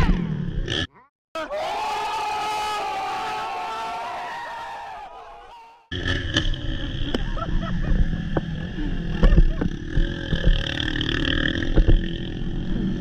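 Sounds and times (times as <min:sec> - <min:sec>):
dirt bike engine running: 0:05.9 - 0:13.0.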